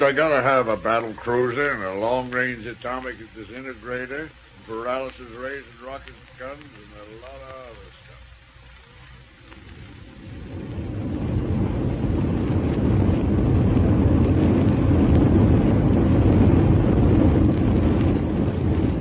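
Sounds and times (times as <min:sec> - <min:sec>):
rocket ship rushing noise: 0:09.7 - 0:19.0.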